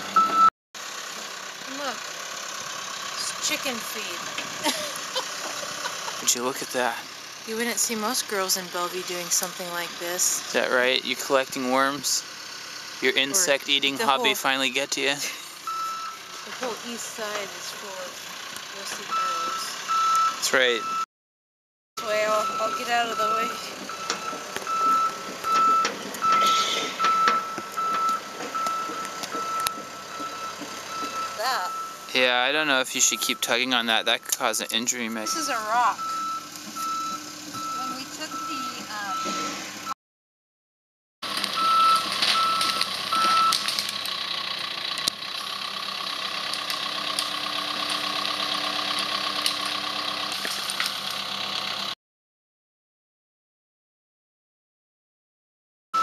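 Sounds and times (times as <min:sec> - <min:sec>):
excavator backup alarm beeping: 0:00.0 - 0:00.5, 0:15.6 - 0:16.3, 0:19.0 - 0:21.1, 0:22.0 - 0:40.0, 0:41.6 - 0:43.7
excavator diesel engine running: 0:00.0 - 0:21.0, 0:22.0 - 0:39.9, 0:41.2 - 0:52.0.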